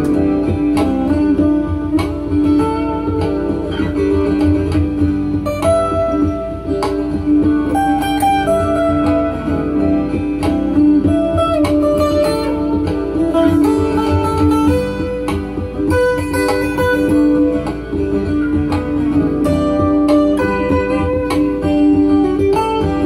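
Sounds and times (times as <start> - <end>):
looped acoustic guitar picking: 0.0 - 23.0.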